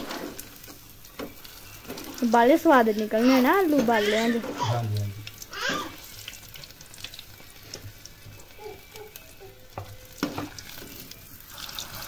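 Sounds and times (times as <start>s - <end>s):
food deep-frying in hot oil: 0.0s - 12.0s.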